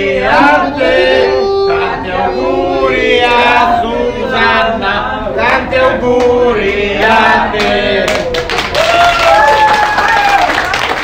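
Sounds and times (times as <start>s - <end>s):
choir-style group singing: 0.0s - 8.4s.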